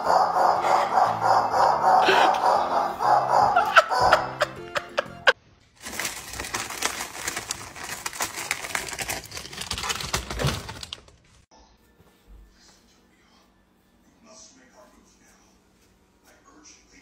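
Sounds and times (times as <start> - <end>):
music: 0.6 - 5.4, 11.5 - 15.8
plastic packaging crinkling: 5.8 - 11.4.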